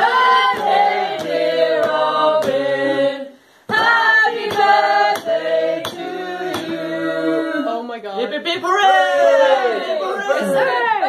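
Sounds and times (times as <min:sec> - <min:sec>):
group singing in chorus: 0:00.0 - 0:07.7.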